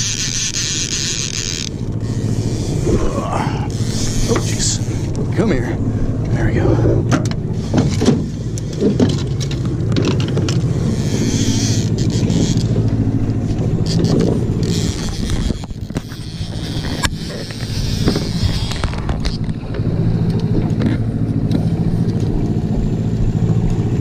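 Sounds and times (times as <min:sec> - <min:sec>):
outboard motor running: 0:00.0 - 0:24.0
rushing wind and water: 0:00.0 - 0:24.0
fishing gear clicks and knocks: 0:07.1 - 0:23.0.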